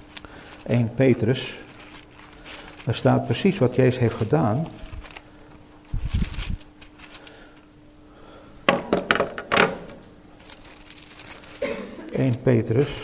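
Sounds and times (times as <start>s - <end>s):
pages rustling: 0.0s - 7.7s, 10.4s - 13.0s
faint steady hum: 0.0s - 13.0s.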